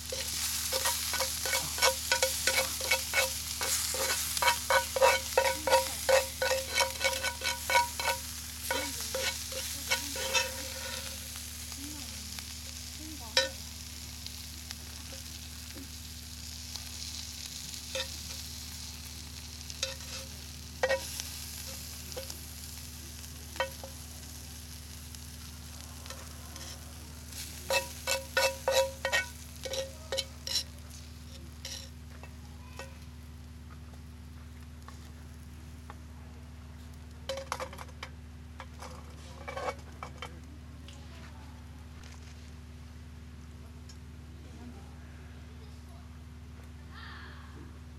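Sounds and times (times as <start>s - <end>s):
metal utensil scraping skillet: 0.0s - 11.4s, 17.9s - 18.6s, 19.8s - 22.3s, 26.0s - 30.7s, 31.3s - 31.9s, 38.8s - 40.1s.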